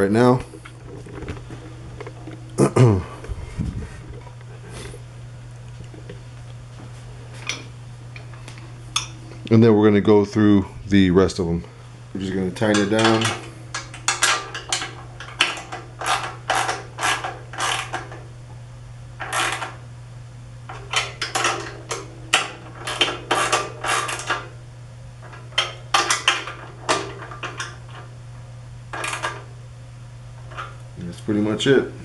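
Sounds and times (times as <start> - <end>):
steady low hum: 0.0 - 32.0
wrench ratcheting: 12.7 - 18.1.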